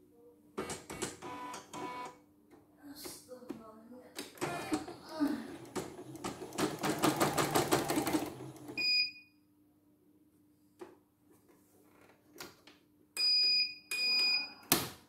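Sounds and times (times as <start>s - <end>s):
embroidery machine stitching: 4.4s - 8.8s.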